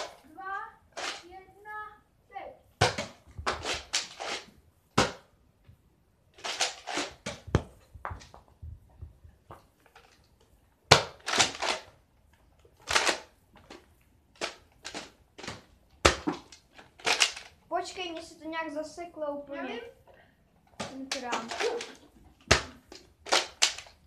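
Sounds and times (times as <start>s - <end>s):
foam darts striking: 5.0s - 5.3s.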